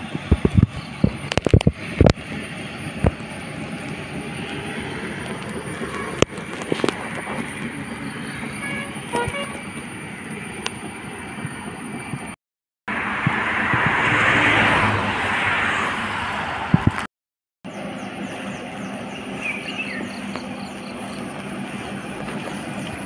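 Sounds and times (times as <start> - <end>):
highway traffic noise: 0.0 - 23.0
vehicle horn tooting: 5.8 - 6.3, 8.5 - 9.9.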